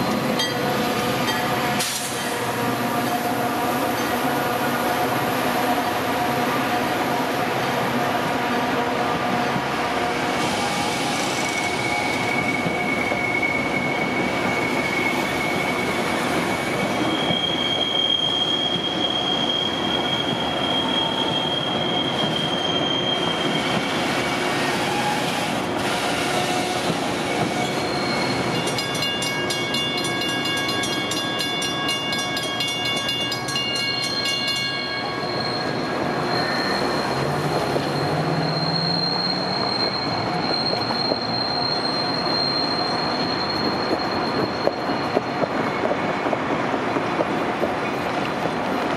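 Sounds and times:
train wheels squealing on rails: 0.0 - 48.9
wheels rumbling on track: 20.2 - 48.9.

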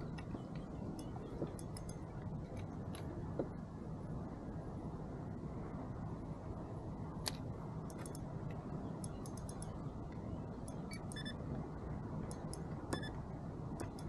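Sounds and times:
steady low rumble: 0.0 - 14.0
light sharp clicks: 7.2 - 11.3.

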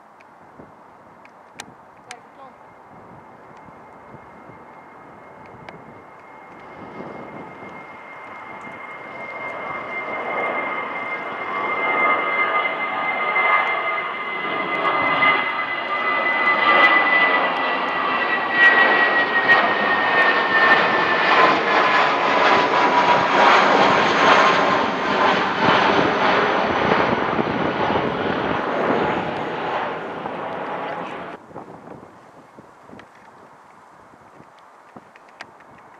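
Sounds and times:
high jet engine whine: 0.0 - 35.9
jet airliner passing overhead: 0.0 - 35.9.

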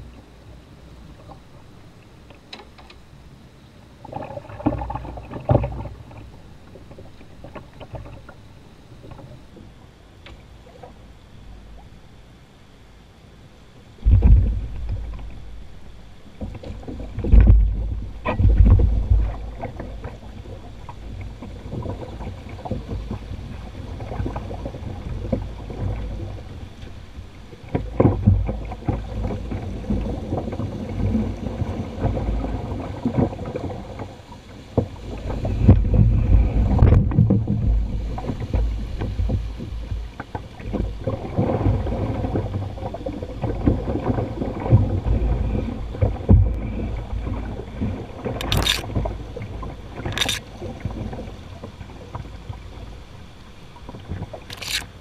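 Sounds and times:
water rushing over rocks: 40.6 - 51.4.

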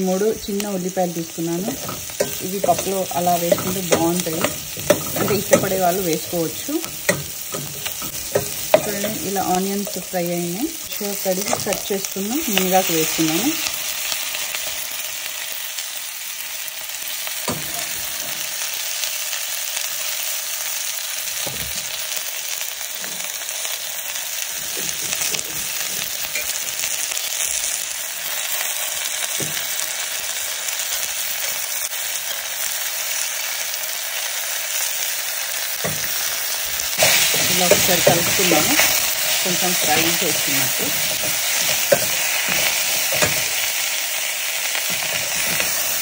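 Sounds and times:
leaves sizzling in hot oil: 0.0 - 46.0
steel ladle knocking pot: 1.7 - 10.1.

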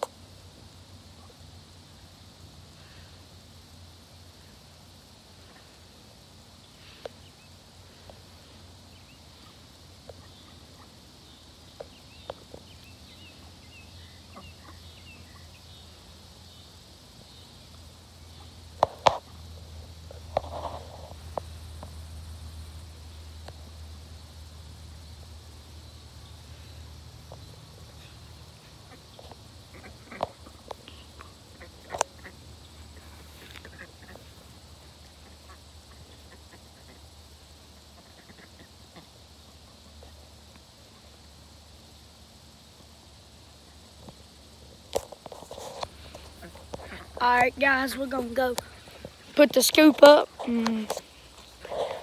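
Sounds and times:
duck calls: 38.0 - 39.1.

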